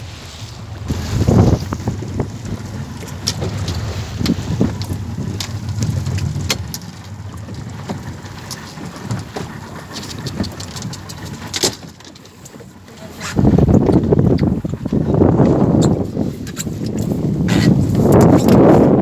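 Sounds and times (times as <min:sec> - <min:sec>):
wind and boat motor rumble: 0:00.0 - 0:19.0.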